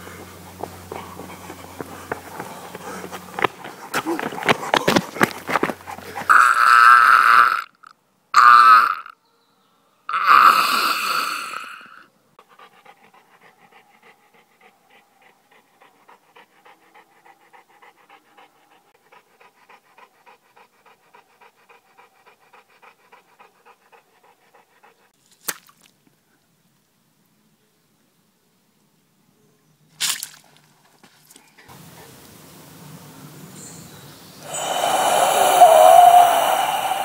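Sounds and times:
dog panting: 0.0 - 6.3, 12.4 - 25.1
loud drawn-out cries: 34.4 - 37.0.

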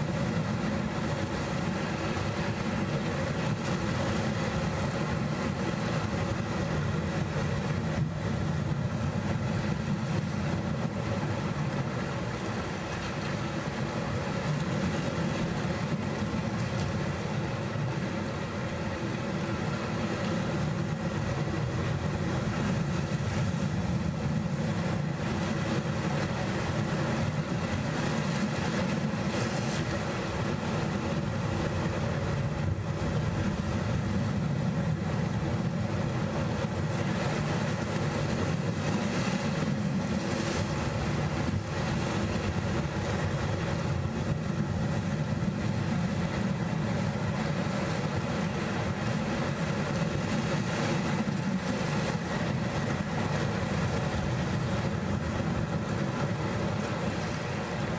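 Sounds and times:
sea waves on rocky shore: 0.0 - 57.9.

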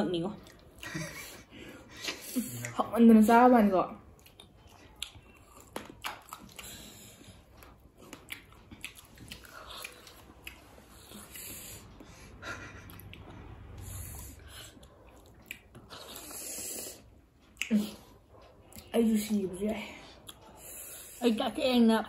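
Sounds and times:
people chewing and eating: 0.0 - 22.0.

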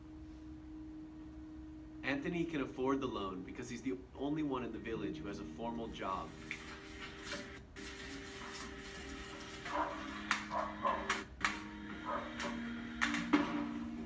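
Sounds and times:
soft background music: 0.1 - 7.3.

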